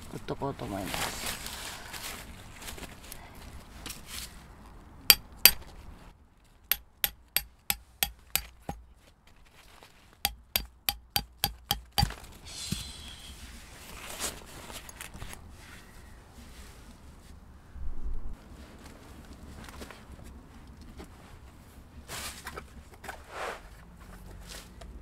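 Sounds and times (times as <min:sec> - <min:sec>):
hammer striking tent peg: 0:05.1 - 0:05.6, 0:06.7 - 0:08.8, 0:10.3 - 0:12.2.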